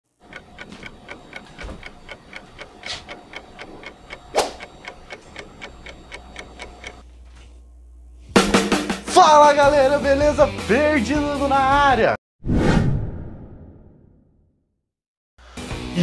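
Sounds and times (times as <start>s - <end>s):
fast clock-like ticking: 0.2s - 7.0s.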